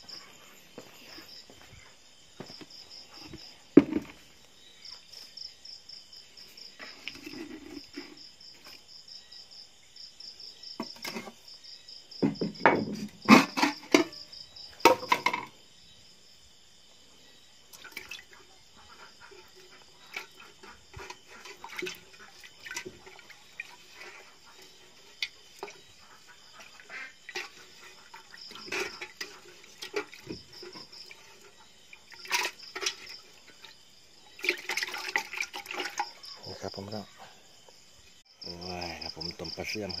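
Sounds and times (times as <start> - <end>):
crickets chirring: 0.0 - 40.0
knocks against metal basin: 12.2 - 14.2, 14.8 - 15.5
water splashing in metal basin: 17.7 - 18.4, 19.4 - 36.4.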